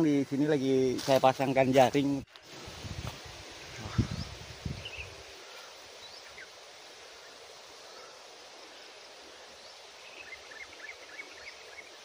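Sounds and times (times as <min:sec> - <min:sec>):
wind through trees: 0:00.0 - 0:12.0
bird chirps: 0:03.8 - 0:06.6, 0:09.4 - 0:12.0.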